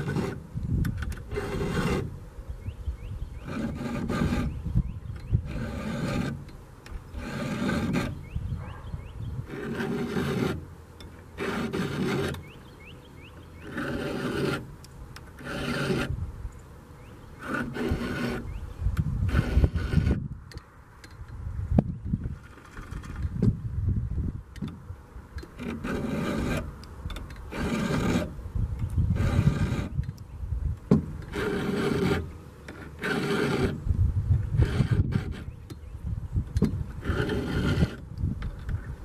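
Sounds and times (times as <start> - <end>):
file rasping on chainsaw chain: 0.0 - 0.4, 1.3 - 2.1, 3.4 - 4.6, 5.2 - 8.4, 9.4 - 10.6, 11.4 - 12.6, 13.6 - 14.7, 15.3 - 16.2, 17.4 - 18.6, 19.3 - 20.2, 25.6 - 26.7, 27.5 - 28.3, 29.1 - 30.0, 31.2 - 33.8, 34.5 - 35.6, 37.0 - 38.0.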